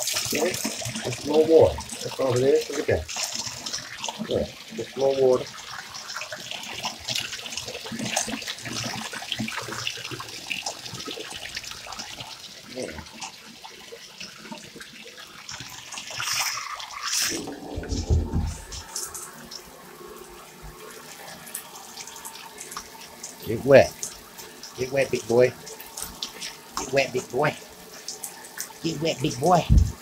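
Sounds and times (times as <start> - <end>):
water rushing: 0.0 - 6.0, 15.9 - 30.0
water running from bathtub tap: 0.0 - 30.0
water splashing: 0.0 - 30.0
deep thump: 17.8 - 18.7, 29.7 - 30.0.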